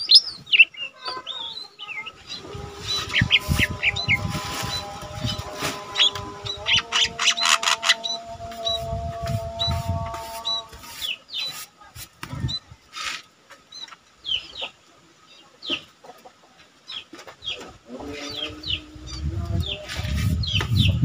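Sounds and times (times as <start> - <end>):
bird chirping: 0.0 - 15.9, 16.8 - 21.0
low rumbling hum: 2.0 - 10.9, 18.2 - 21.0.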